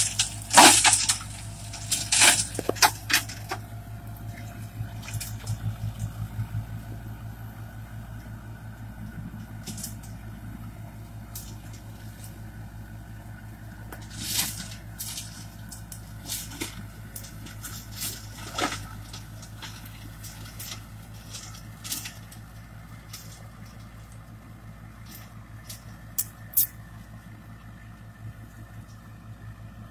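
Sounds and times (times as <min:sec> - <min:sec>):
wood cracking: 0:00.0 - 0:06.4, 0:13.8 - 0:24.4
mulcher shredding brush: 0:00.0 - 0:29.4
tractor engine running: 0:00.0 - 0:29.9.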